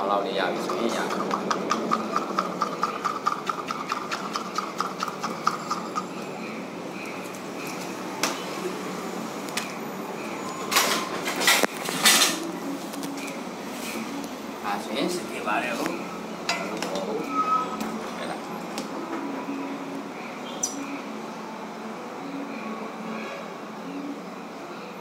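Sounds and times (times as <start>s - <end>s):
metal rod stirring ink in cup: 0.6s - 6.2s.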